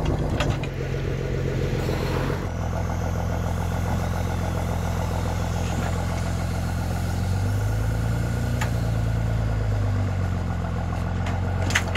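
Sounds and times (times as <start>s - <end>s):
engine running: 0.0s - 11.9s
hydraulic crane working: 0.0s - 11.9s.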